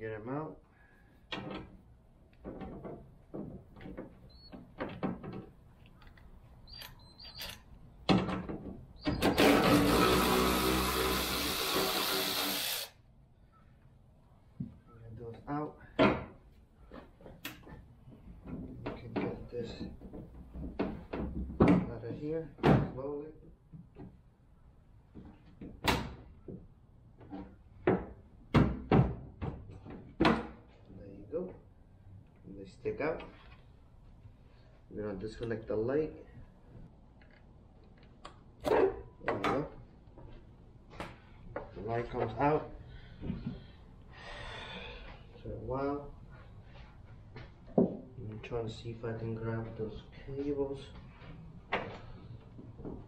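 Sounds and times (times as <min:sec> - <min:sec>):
cordless drill running: 0:09.2 - 0:13.0.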